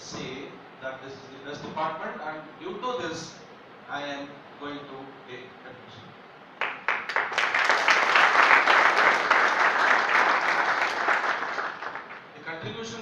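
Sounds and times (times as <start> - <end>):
audience applauding: 6.6 - 12.3.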